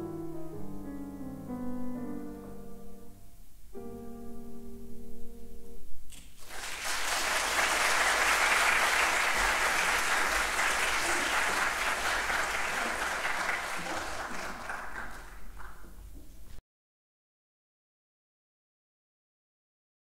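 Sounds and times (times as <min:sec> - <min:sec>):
audience applauding: 0:06.4 - 0:16.3.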